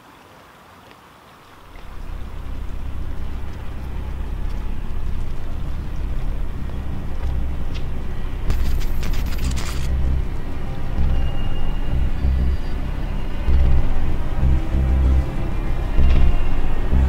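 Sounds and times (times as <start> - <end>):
crackling digital glitch static: 1.6 - 17.0
low rumbling drone: 1.6 - 17.0.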